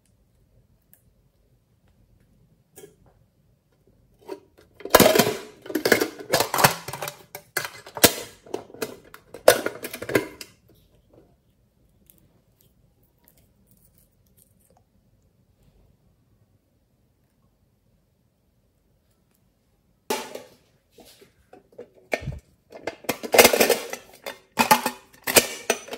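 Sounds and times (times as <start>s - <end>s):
metal tin lid clattering: 4.2s - 10.5s, 20.1s - 20.6s, 21.7s - 25.9s.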